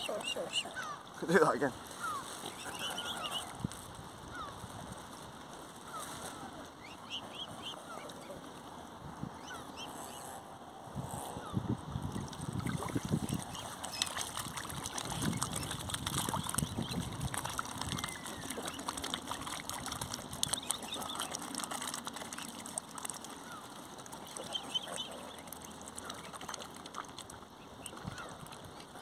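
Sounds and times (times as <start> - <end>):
waterfowl calling: 0.0 - 1.1, 2.0 - 3.6, 12.6 - 27.1
waterfowl splashing: 0.0 - 8.8, 12.1 - 29.0.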